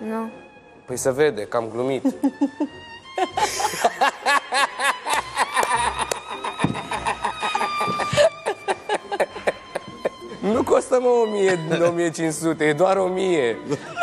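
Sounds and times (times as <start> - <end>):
light background music: 0.0 - 14.0
adult laughter: 3.2 - 10.2.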